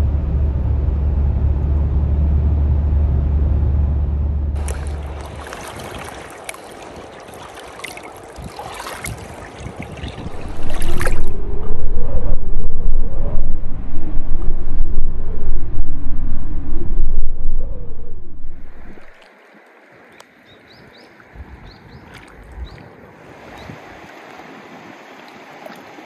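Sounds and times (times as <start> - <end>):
wind buffeting microphone: 4.5 - 7.1, 8.3 - 19.2
river water running over stones: 4.6 - 11.3.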